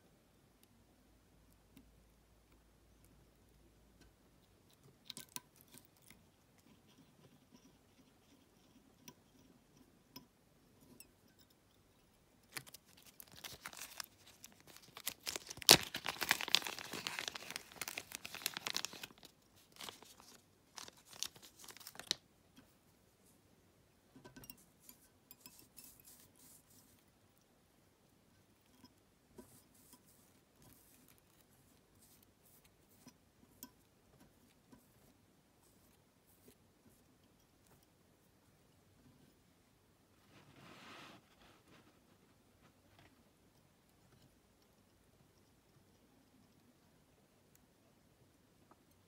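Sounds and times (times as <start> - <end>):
plastic bag crinkling: 12.5 - 22.2
light clicks and taps of tools: 24.1 - 27.5.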